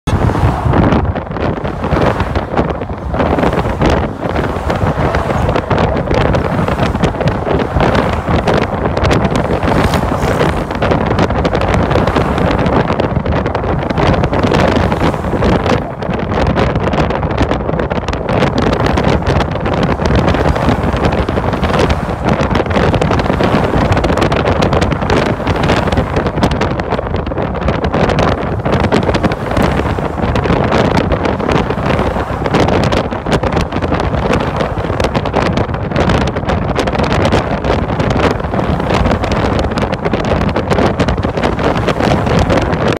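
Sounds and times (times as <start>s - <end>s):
moving traffic: 0.0s - 42.9s
road and tyre noise: 0.0s - 42.9s
wind buffeting microphone: 0.0s - 42.9s.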